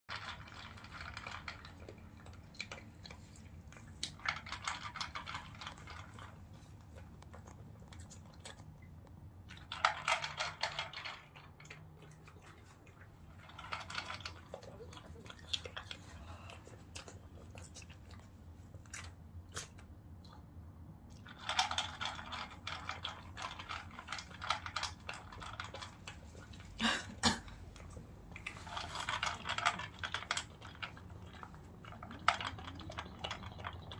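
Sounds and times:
dog crunching dry kibble: 0:00.1 - 0:08.8, 0:21.2 - 0:26.8, 0:27.7 - 0:33.9.

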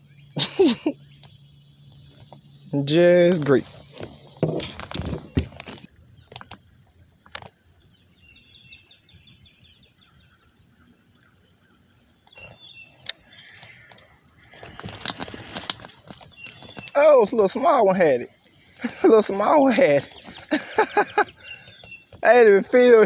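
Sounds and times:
bird chirping faintly: 0:07.7 - 0:23.0
fishing rod and reel clicking: 0:12.2 - 0:17.0.

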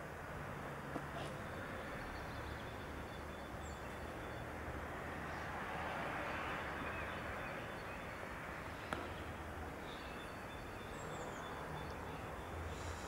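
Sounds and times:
faint bird chirp: 0:01.1 - 0:04.5, 0:06.6 - 0:13.0.

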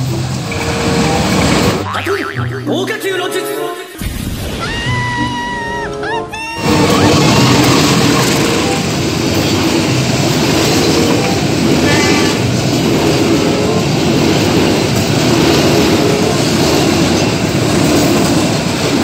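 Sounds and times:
train wheels rumbling on rails: 0:00.0 - 0:01.8, 0:06.6 - 0:19.0.

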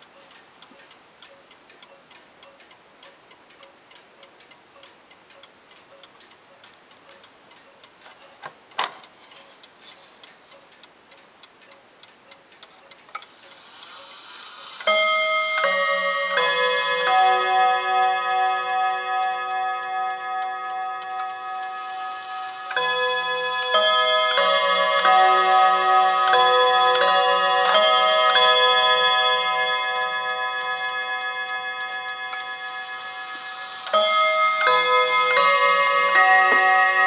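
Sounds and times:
clock ticking: 0:00.0 - 0:37.0
clock chime rods ringing: 0:13.5 - 0:37.0.

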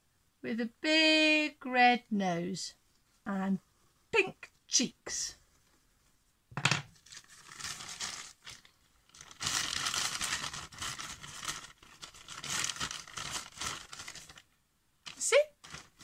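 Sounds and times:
paper bag crinkling: 0:07.0 - 0:14.5, 0:15.1 - 0:16.0.

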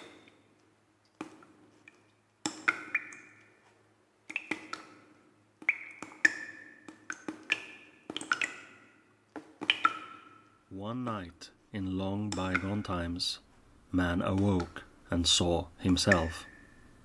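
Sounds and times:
sharp ringing clicks and pings: 0:16.0 - 0:16.8.

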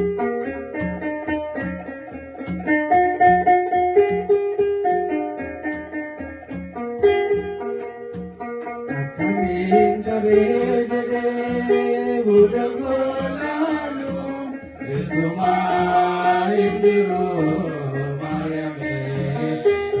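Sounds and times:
man singing into microphone: 0:09.2 - 0:20.0.

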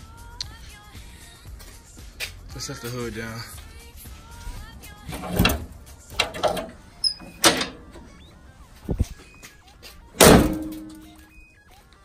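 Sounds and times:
van hood knocking and clunking shut: 0:05.0 - 0:08.1, 0:10.2 - 0:11.0.

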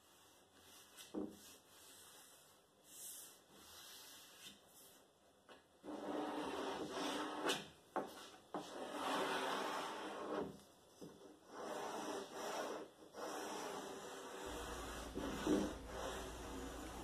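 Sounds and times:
wooden block rubbing on board edge: 0:11.4 - 0:17.0.

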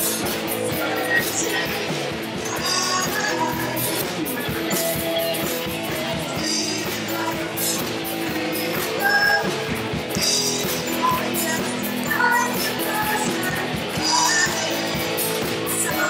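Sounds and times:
drum kit with cymbals: 0:00.0 - 0:16.0
electric guitar: 0:00.0 - 0:16.0
woman singing into a microphone: 0:00.5 - 0:05.5, 0:06.1 - 0:09.6, 0:10.2 - 0:16.0.

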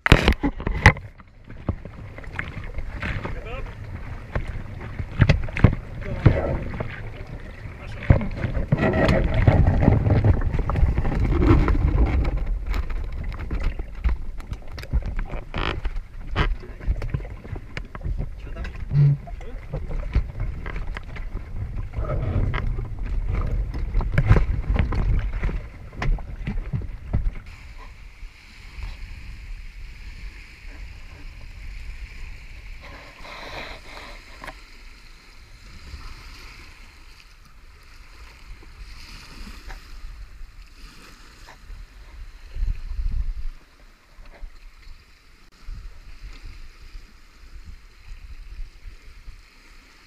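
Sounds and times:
knocks and rattles on boat: 0:00.0 - 0:27.5
waves lapping against hull: 0:00.0 - 0:50.0
wind buffeting microphone: 0:00.6 - 0:33.4.

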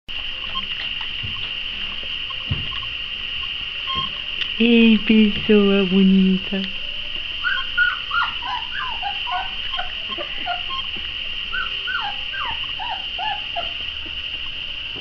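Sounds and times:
steady high-pitched hiss: 0:00.1 - 0:15.0
puppies whimpering: 0:02.7 - 0:04.3, 0:06.8 - 0:15.0.

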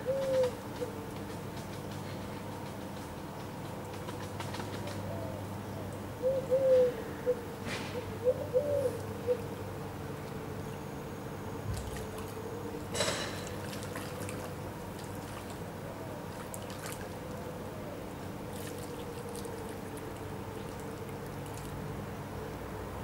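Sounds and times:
river water trickling: 0:10.0 - 0:23.0
water splashing: 0:11.7 - 0:12.4, 0:13.2 - 0:17.4, 0:18.4 - 0:21.8
water drips: 0:13.3 - 0:15.7, 0:16.3 - 0:17.3, 0:18.5 - 0:21.8.

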